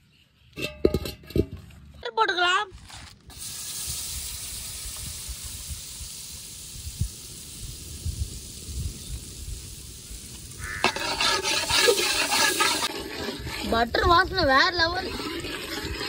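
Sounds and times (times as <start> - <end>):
butter sizzling in a pan: 3.3 - 16.0.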